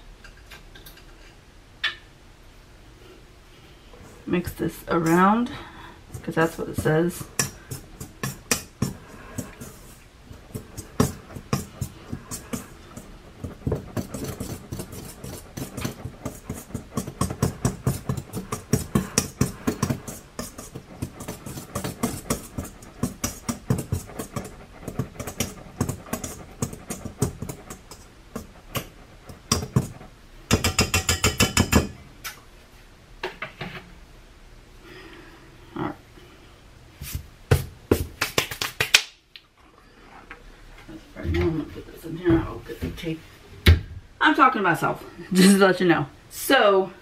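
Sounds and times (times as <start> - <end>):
utensil clinking against mixing bowl: 30.5 - 32.0.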